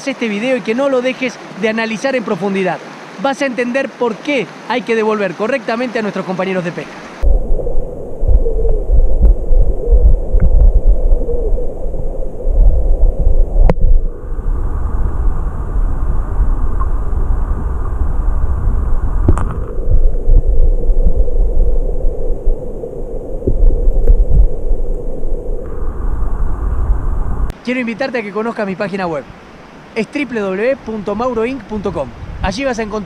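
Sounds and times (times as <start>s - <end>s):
muffled underwater stream rumble: 7.2s - 27.5s.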